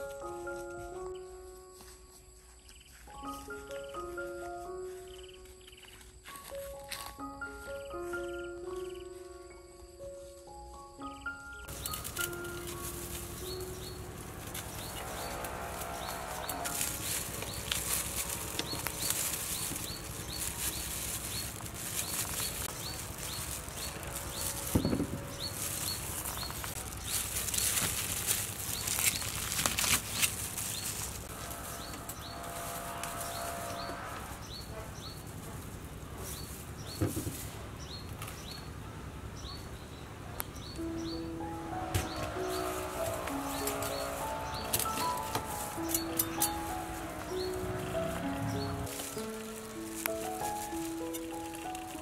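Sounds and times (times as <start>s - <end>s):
fruit rustling in plastic colander: 11.7s - 33.3s, 42.0s - 52.0s.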